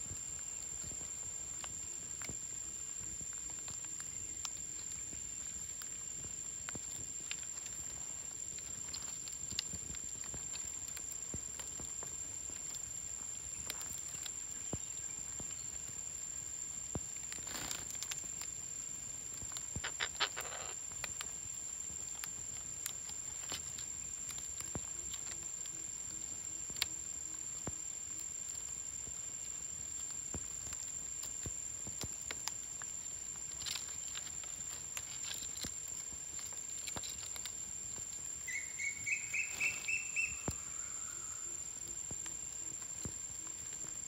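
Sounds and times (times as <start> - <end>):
parrots clicking and scratching: 19.7 - 21.2.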